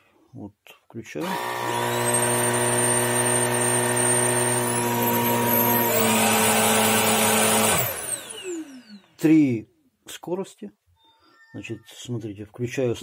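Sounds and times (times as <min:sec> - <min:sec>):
stick vacuum motor whining: 0:01.2 - 0:09.2.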